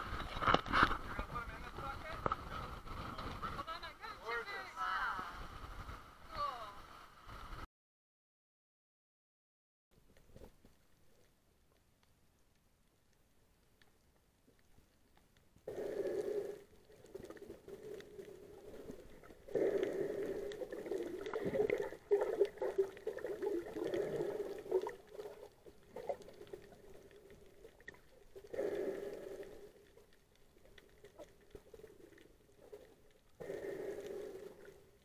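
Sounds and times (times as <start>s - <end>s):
muffled underwater bubbling: 15.7s - 35.0s.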